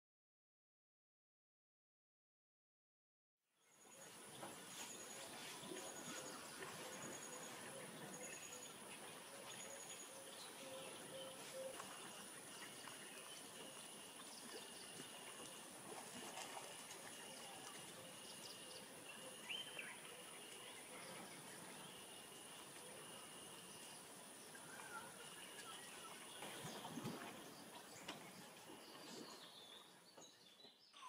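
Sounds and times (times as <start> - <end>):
faint bird calls: 5.0 - 23.7, 24.5 - 30.0.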